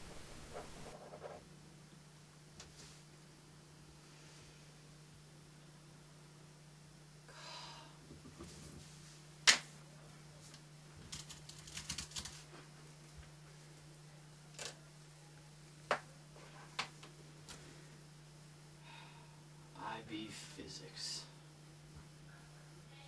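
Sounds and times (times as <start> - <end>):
low steady hum: 0.0 - 23.0
laptop keyboard typing: 11.0 - 12.4.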